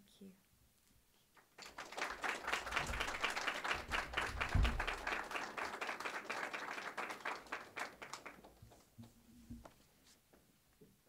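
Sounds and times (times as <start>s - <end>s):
audience applauding: 1.4s - 8.9s
low thump: 4.3s - 4.9s.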